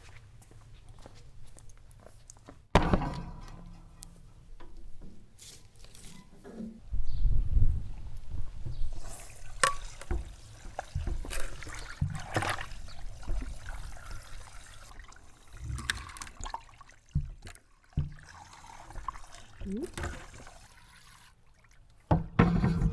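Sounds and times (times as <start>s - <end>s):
liquid trickling and splashing: 9.0s - 22.1s.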